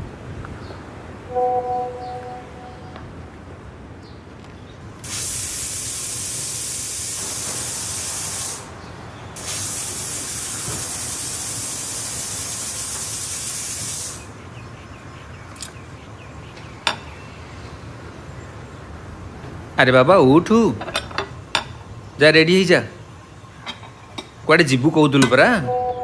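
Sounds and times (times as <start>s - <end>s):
pressure cooker hissing steam: 5.0s - 14.3s.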